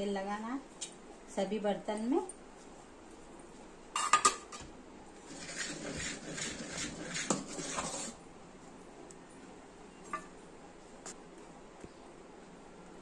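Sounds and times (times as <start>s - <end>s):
spoon stirring batter in pot: 5.2s - 8.2s.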